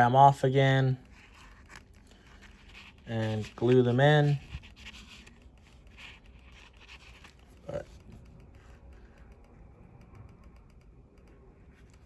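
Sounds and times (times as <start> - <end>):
paper towel rustling: 1.1 - 8.0.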